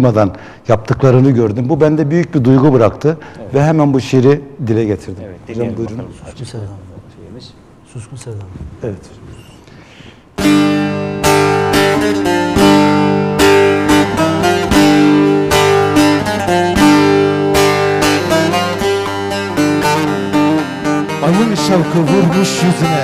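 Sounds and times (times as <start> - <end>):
plucked lute melody with drone: 10.4 - 23.0.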